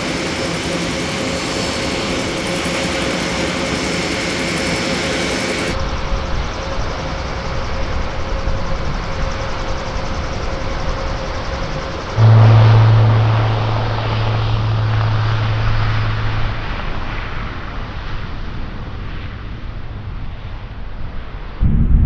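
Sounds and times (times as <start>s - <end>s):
turboprop engines running: 0.0s - 22.0s
strong low drone: 12.2s - 19.1s, 21.5s - 22.0s.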